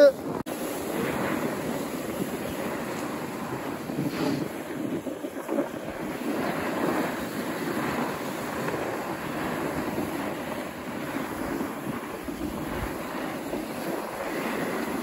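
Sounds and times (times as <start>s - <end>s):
skis hissing over snow: 0.0s - 15.0s
wind on microphone: 0.0s - 15.0s.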